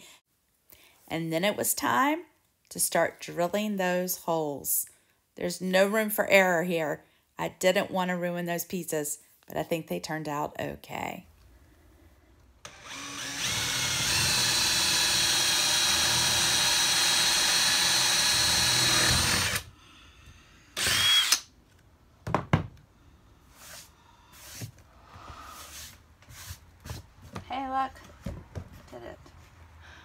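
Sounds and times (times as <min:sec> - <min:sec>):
power drill whining: 0:12.6 - 0:19.7, 0:20.8 - 0:21.5.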